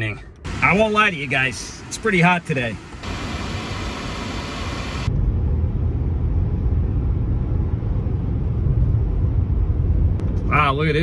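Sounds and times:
road and tyre noise: 0.0s - 11.0s
air-conditioning blower hiss: 0.5s - 5.1s.

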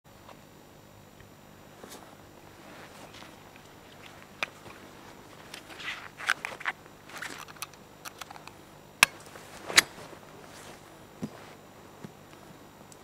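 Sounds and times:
footsteps through dry grass: 1.8s - 7.4s, 9.2s - 12.1s
sharp clicks: 5.5s - 9.9s.

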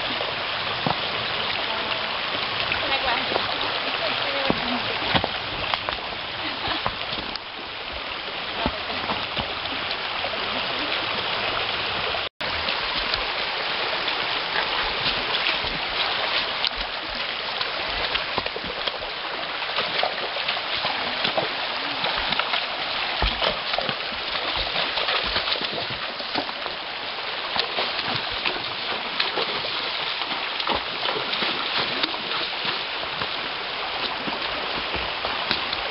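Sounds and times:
hooves splashing on stones: 0.0s - 35.9s
rocky creek running: 0.0s - 35.9s.

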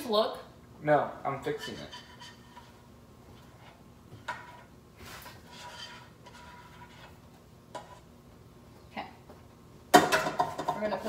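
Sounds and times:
bowls and utensils knocking: 9.9s - 11.0s.

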